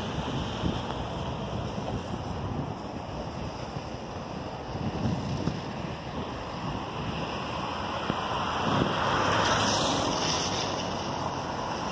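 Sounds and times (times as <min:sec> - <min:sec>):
wind on microphone: 0:00.0 - 0:11.9.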